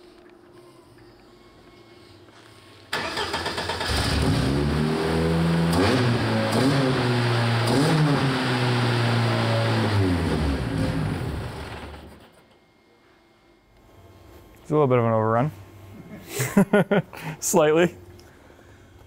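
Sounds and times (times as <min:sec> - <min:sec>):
starter motor cranking: 0:02.9 - 0:04.4
car engine revving: 0:03.0 - 0:12.1.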